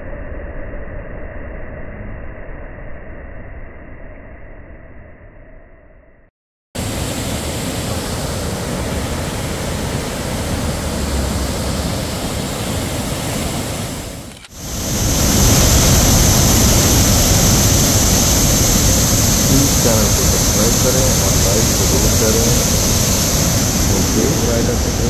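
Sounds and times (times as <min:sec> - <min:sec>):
waterfall rushing: 0:06.8 - 0:25.0.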